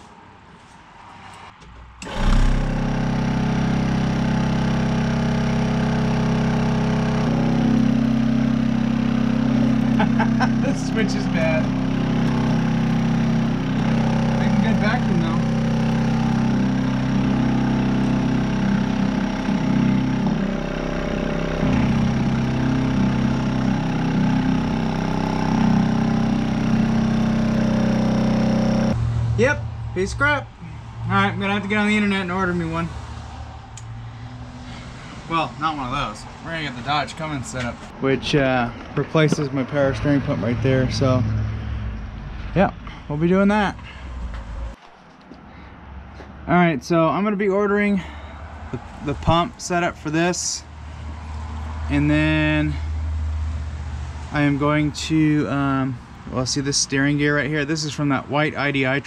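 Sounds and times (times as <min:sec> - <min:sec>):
vacuum pump pulsing hum: 0:02.0 - 0:29.0.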